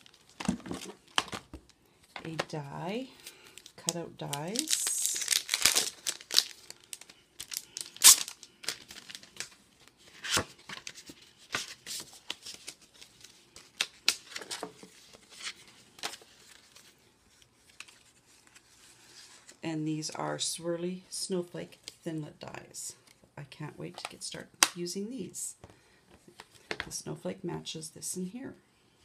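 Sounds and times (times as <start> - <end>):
plastic packaging crinkling and tearing: 0.0 - 1.8, 3.2 - 18.8.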